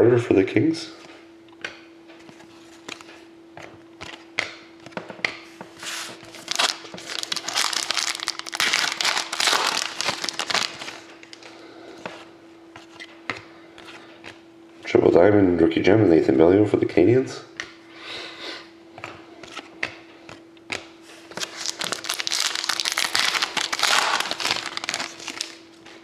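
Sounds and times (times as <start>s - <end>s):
foil wrapper tearing and crinkling: 6.4s - 11.4s, 21.4s - 25.6s.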